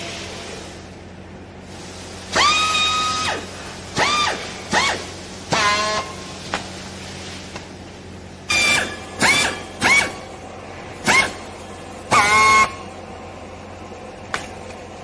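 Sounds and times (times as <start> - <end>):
strapping tool whining: 8.5 - 10.2.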